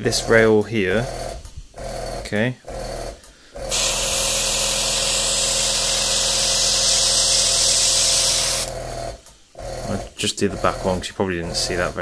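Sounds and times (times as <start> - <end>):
air compressor humming: 0.0 - 12.0
airbrush hiss: 3.7 - 8.7.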